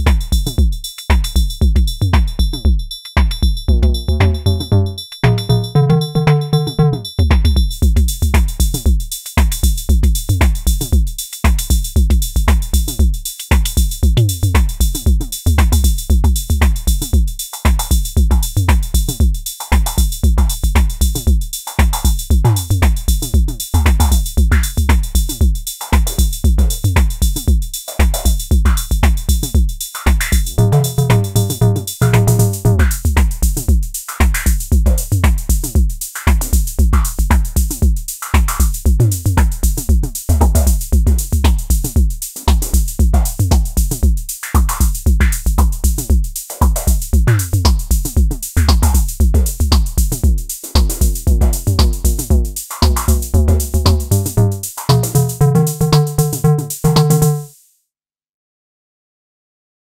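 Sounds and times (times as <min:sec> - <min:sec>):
snare drum: 0:00.0 - 0:02.5, 0:03.1 - 0:03.5, 0:07.3 - 0:57.6
metallic hi-hat: 0:00.0 - 0:03.7, 0:04.5 - 0:57.7
bass drum hits: 0:30.4 - 0:33.4, 0:47.2 - 0:57.5.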